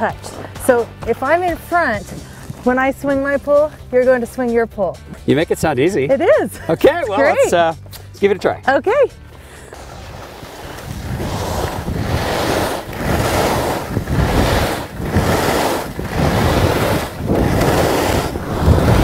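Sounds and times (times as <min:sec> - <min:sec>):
skis scraping on snow: 0:00.1 - 0:03.6, 0:09.4 - 0:19.0
wind buffeting microphone: 0:10.1 - 0:19.0.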